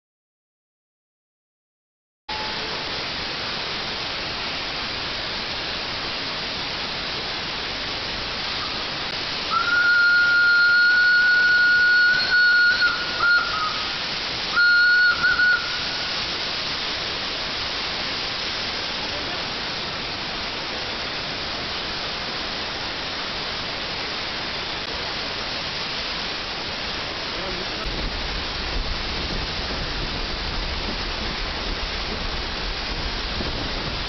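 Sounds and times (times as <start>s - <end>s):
steam locomotive whistle: 2.3s - 2.9s, 9.4s - 16.2s
steady steam hiss: 2.3s - 34.0s.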